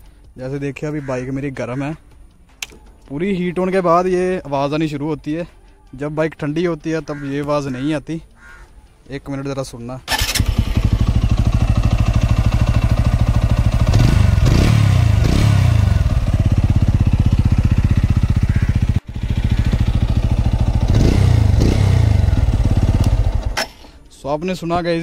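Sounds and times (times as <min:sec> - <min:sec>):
motorcycle engine running: 0:10.1 - 0:23.6
engine ticking: 0:10.1 - 0:23.7.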